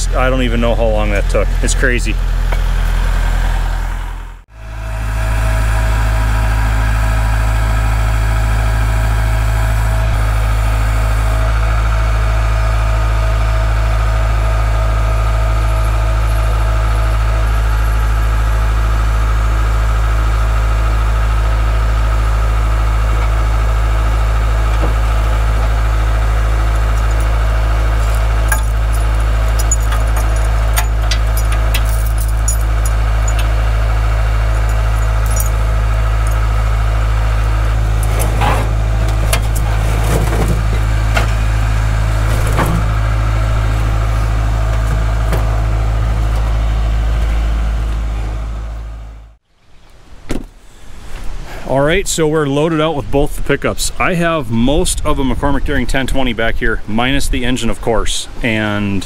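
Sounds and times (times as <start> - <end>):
engine idling: 0.0 - 49.4
metallic clicks and clanks: 28.0 - 33.5, 34.5 - 35.6.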